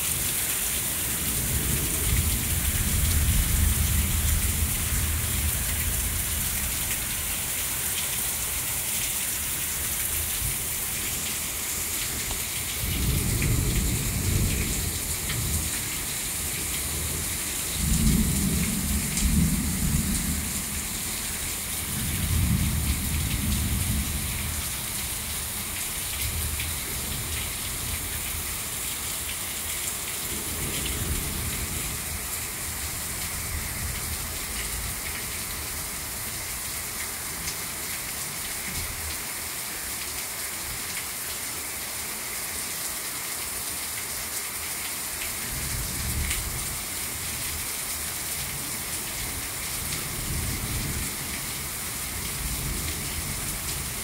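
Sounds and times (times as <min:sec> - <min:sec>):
heavy rain pouring: 0:00.0 - 0:54.0
low rolls of thunder: 0:17.0 - 0:20.9.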